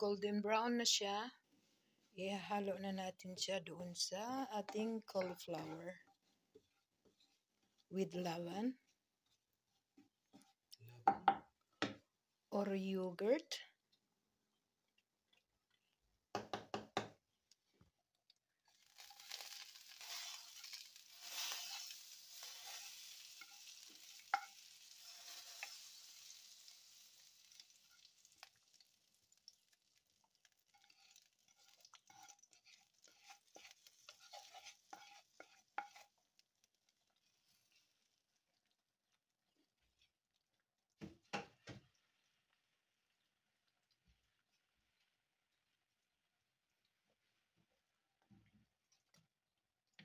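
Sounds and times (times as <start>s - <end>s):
wooden spoon stirring sauce: 3.3s - 10.8s, 13.8s - 16.3s, 20.1s - 25.8s, 27.5s - 41.0s
hot oil hissing: 18.8s - 29.4s.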